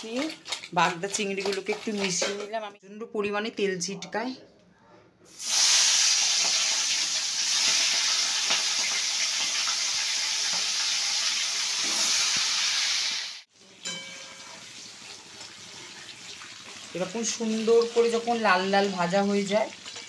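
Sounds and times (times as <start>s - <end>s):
prawns sizzling in hot oil: 5.3s - 20.0s.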